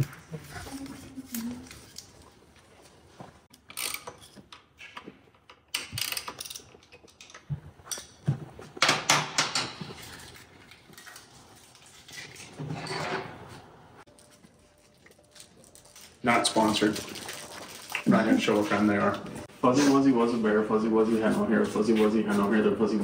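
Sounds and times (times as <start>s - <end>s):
hand tools and metal parts clattering: 3.5s - 13.6s.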